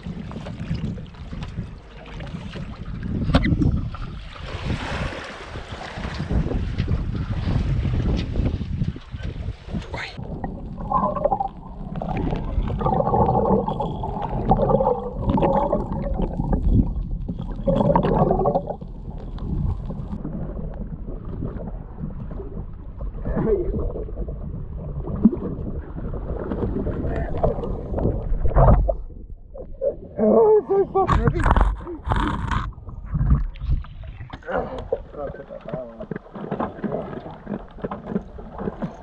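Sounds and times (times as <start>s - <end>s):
rough water bursts: 0.0s - 8.1s, 9.5s - 39.0s
muffled underwater gurgling: 9.9s - 39.0s.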